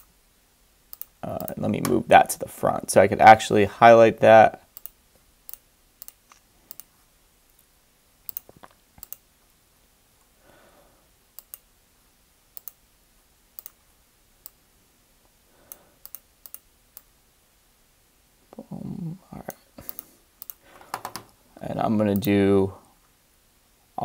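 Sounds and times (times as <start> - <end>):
computer mouse clicks: 0.9 - 1.6, 4.8 - 6.9, 8.3 - 9.2, 11.4 - 11.7, 12.6 - 12.8, 13.6 - 13.8, 15.7 - 17.1, 19.8 - 21.3.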